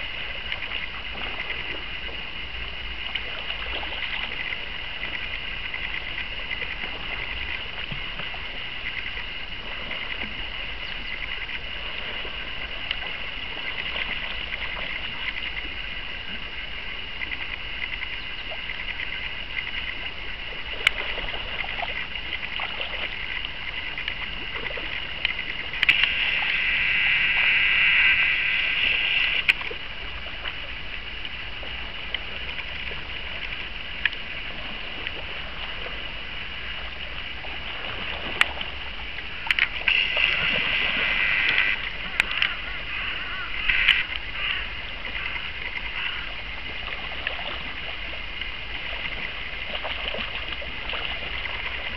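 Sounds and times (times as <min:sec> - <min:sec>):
river running over gravel: 0:00.0 - 0:51.9
sharp clicks: 0:25.2 - 0:27.1
loud water splashing: 0:25.8 - 0:29.8, 0:39.6 - 0:44.6.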